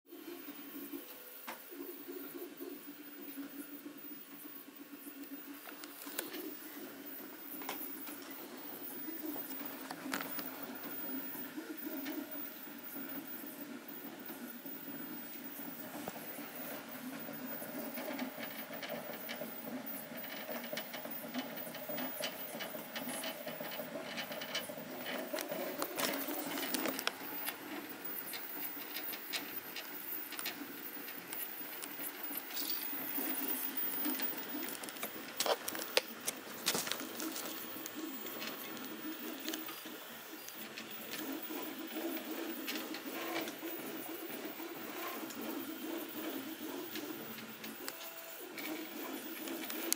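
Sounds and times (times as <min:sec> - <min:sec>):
printer motors humming: 0:00.1 - 0:49.9
print head rattling and clicking: 0:05.0 - 0:49.9.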